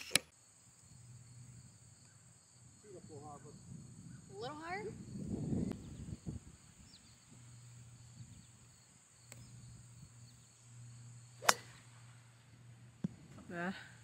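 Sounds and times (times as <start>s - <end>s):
golf club striking ball: 11.4s - 12.1s.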